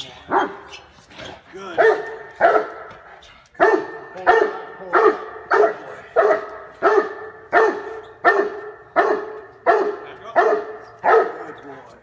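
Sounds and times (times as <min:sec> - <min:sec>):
dog barking deeply with echo: 0:03.6 - 0:11.4.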